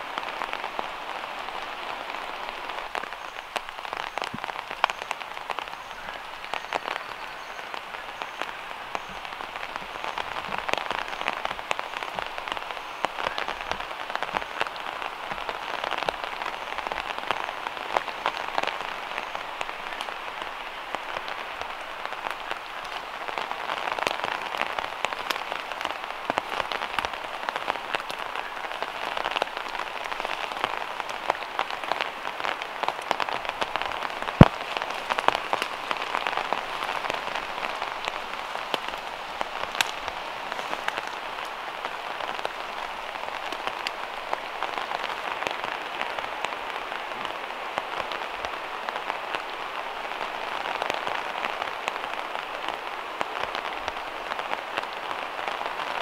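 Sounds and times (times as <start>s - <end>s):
rain dripping through foliage: 0.0s - 56.0s.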